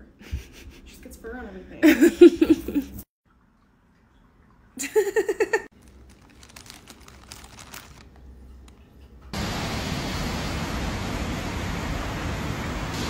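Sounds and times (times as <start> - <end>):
plastic bag crinkling: 5.7 - 8.8.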